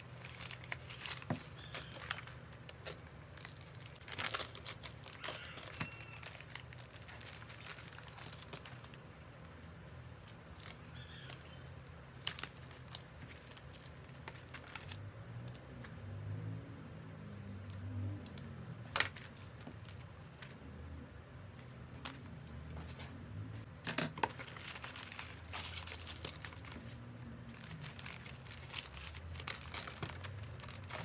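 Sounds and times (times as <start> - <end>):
plastic mailers crinkling: 0.0 - 15.0, 18.8 - 20.6, 23.9 - 31.0.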